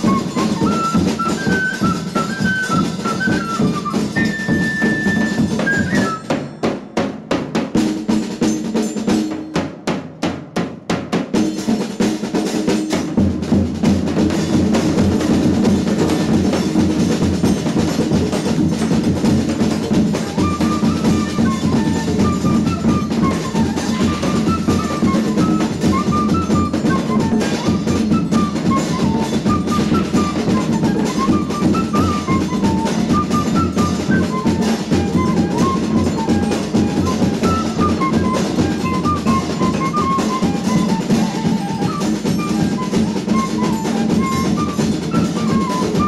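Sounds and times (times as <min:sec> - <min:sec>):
fife playing high melody: 0:00.0 - 0:06.6, 0:19.5 - 0:46.0
folk percussion groove: 0:00.0 - 0:46.0.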